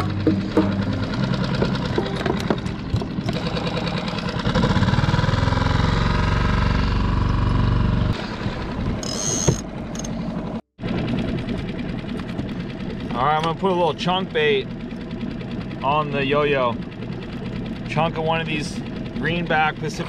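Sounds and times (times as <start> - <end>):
small outboard motor running: 0.0 - 20.0.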